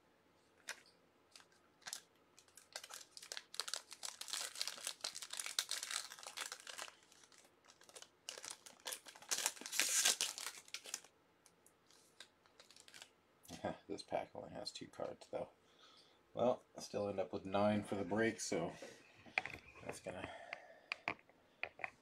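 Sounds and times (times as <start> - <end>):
wrapper crackling: 0.6 - 11.1, 11.8 - 13.1.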